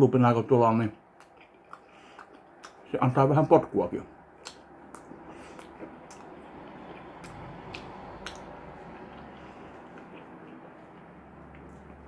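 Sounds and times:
person chewing: 0:01.1 - 0:03.0, 0:04.4 - 0:12.0.

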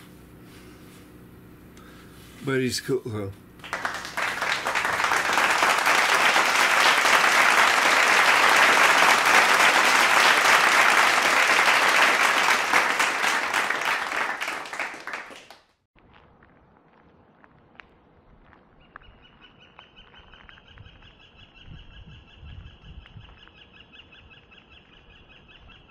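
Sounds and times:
crowd applause: 0:03.6 - 0:15.8.

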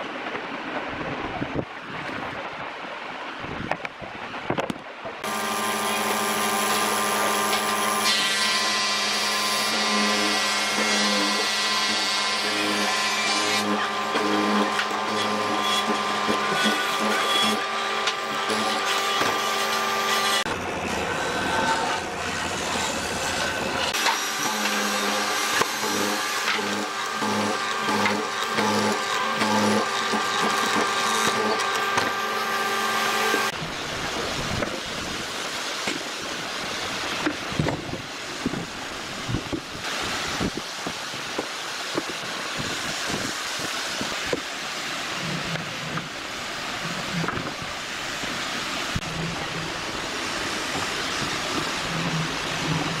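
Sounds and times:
mortiser whining cutting wood: 0:05.2 - 0:33.6.

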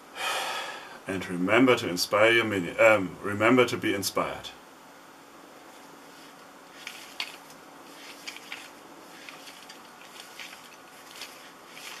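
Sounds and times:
faint room hiss: 0:00.0 - 0:12.0
wooden whirligig clicking: 0:06.8 - 0:12.0.

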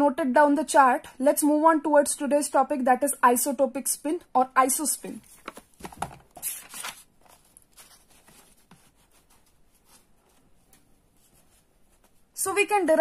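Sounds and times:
paper rustling: 0:05.1 - 0:12.3
notebook knocking: 0:05.4 - 0:06.3.

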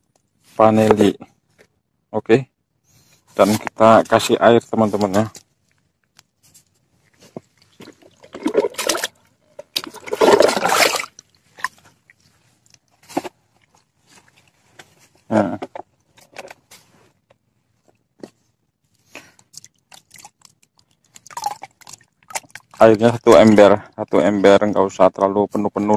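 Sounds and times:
water splashing into a bucket: 0:07.0 - 0:14.8, 0:19.1 - 0:24.8
bucket scraping and knocking: 0:07.2 - 0:11.9, 0:13.0 - 0:13.5, 0:14.2 - 0:16.9.

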